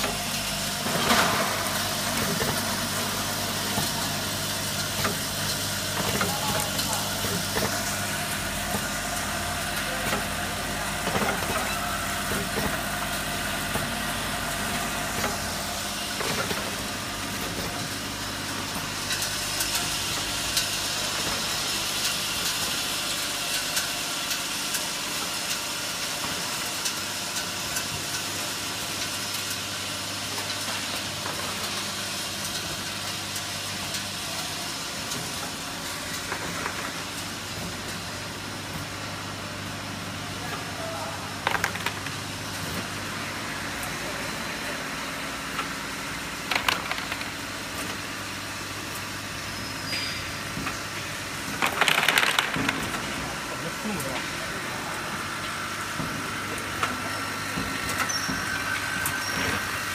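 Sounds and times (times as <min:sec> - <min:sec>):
machinery low hum: 0:00.0 - 0:23.5.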